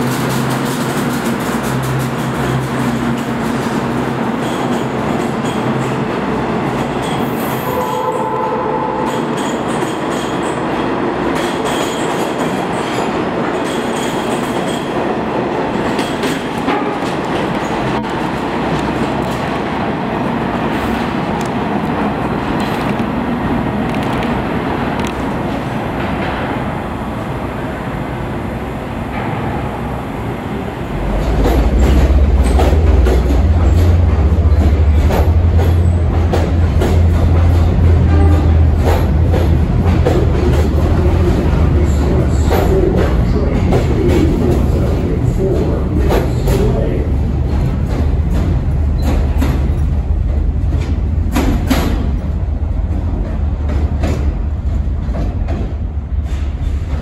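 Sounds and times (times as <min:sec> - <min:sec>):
train rumbling on rails: 0:00.0 - 0:57.0.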